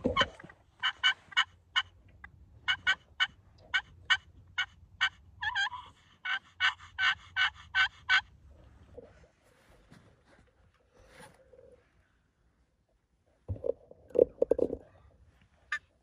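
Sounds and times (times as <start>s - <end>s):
turkey call yelps: 0.1s - 1.9s, 2.7s - 8.3s.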